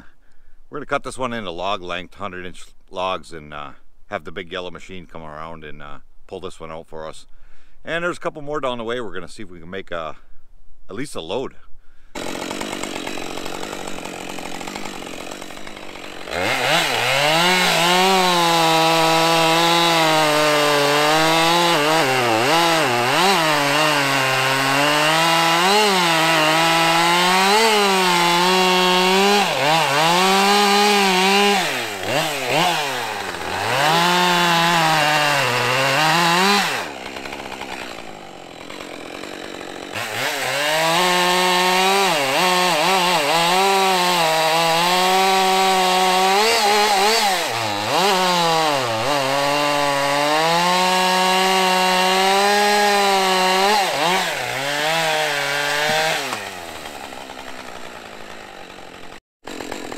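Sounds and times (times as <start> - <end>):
chainsaw idling and revving: 12.1 - 59.9.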